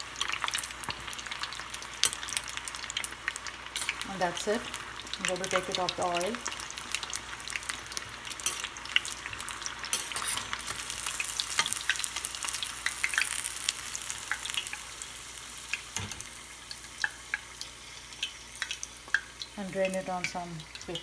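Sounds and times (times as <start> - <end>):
food deep-frying in hot oil: 0.0 - 21.0
metal spoon stirring in pot: 9.9 - 10.9.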